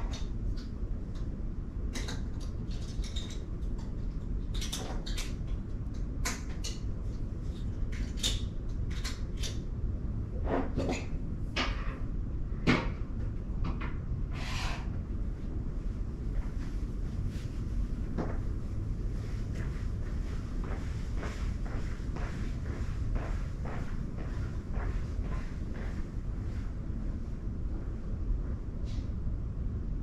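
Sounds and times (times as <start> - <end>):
steady low rumble: 0.0 - 4.6, 5.2 - 30.0.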